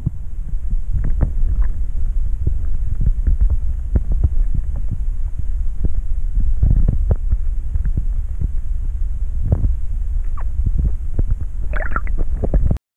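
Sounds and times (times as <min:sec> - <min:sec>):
muffled underwater rumble: 0:00.0 - 0:12.8
clicks and knocks underwater: 0:11.2 - 0:12.8.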